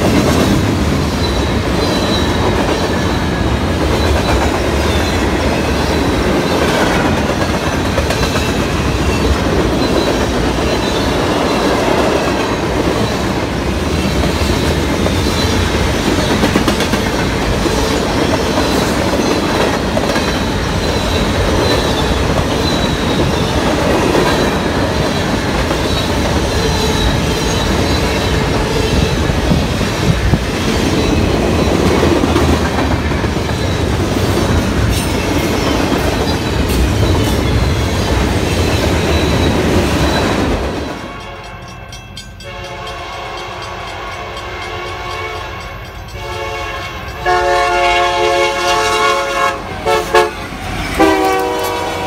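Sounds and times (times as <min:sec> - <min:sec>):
train wheels clacking on rail joints: 0:00.0 - 0:44.5
freight train rumbling past: 0:00.0 - 0:52.0
locomotive air horn blasts: 0:46.2 - 0:52.0.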